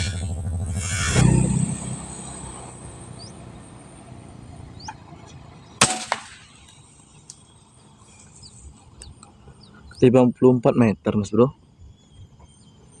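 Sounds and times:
low rumble: 0.0 - 7.1
faint bird chirps: 0.7 - 5.8, 6.4 - 13.0
air rifle crack: 5.8 - 6.7.

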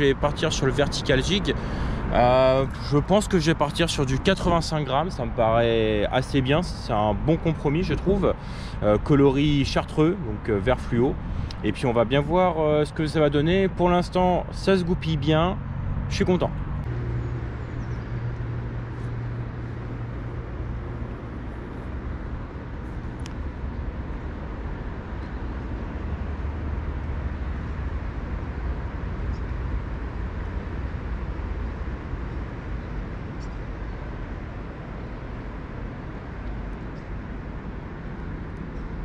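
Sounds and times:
wind: 0.0 - 39.0
small boat motor humming: 15.6 - 30.4.

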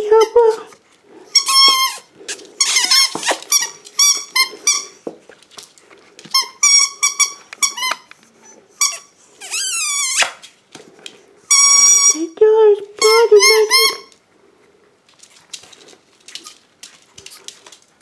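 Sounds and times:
rubber squeaky toy squeaking: 1.3 - 5.0, 6.3 - 8.1, 8.8 - 10.4, 11.5 - 12.2, 13.0 - 14.1.

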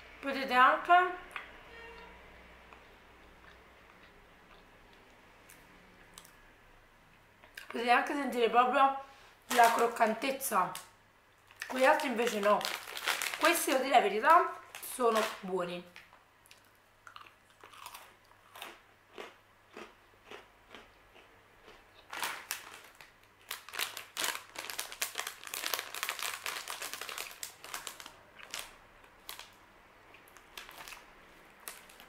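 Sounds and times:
crackers crunching: 9.5 - 10.0, 10.8 - 13.9, 14.6 - 32.0
plastic packet crinkling: 9.5 - 10.9, 11.5 - 15.5, 22.1 - 29.6, 30.3 - 32.0.

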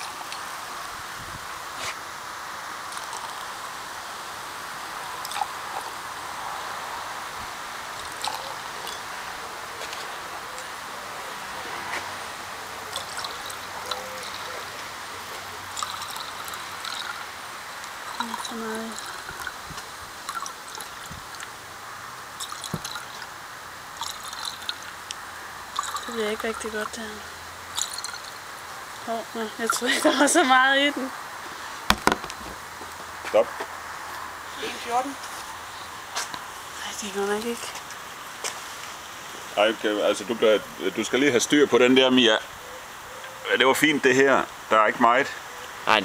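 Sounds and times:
champagne fizzing pour: 0.0 - 11.6, 12.3 - 31.0.

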